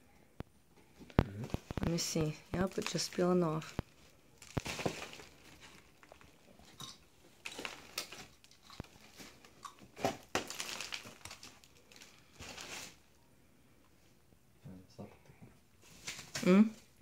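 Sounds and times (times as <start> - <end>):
plastic bag crinkling: 1.1 - 13.0.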